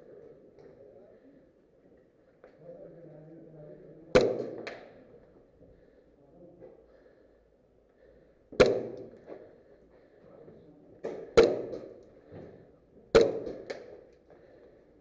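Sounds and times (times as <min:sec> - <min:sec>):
airsoft pistol shots: 0:04.1 - 0:04.9, 0:08.6 - 0:09.2, 0:11.0 - 0:12.0, 0:13.1 - 0:14.0.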